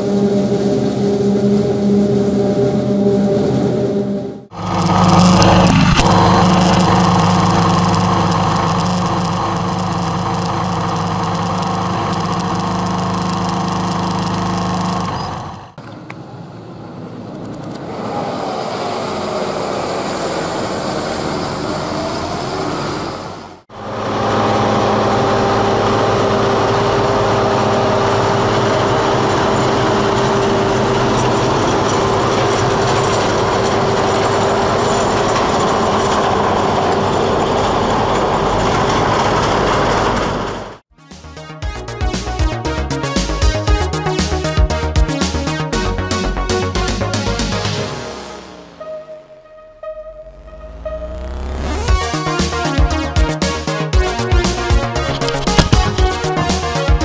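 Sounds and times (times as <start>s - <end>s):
tractor engine running: 0.0s - 17.8s, 18.9s - 40.9s, 51.3s - 57.0s
snow-clearing machine engine: 0.0s - 40.8s, 51.4s - 57.0s
tractor whine over engine: 0.0s - 40.9s, 54.1s - 57.0s.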